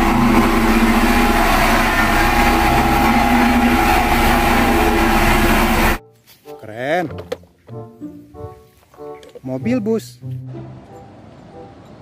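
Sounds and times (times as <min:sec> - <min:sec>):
roller diesel engine droning: 0:00.0 - 0:06.0.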